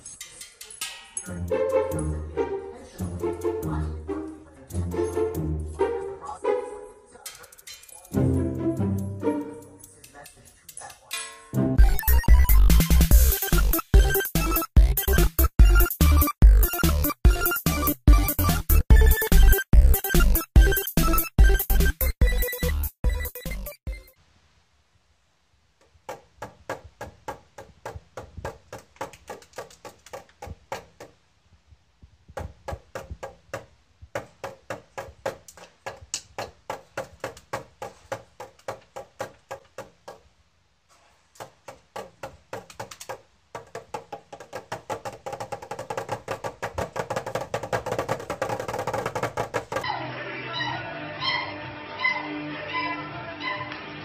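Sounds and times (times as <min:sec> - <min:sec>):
drumsticks on toy snare drum: 0:41.3 - 0:49.8.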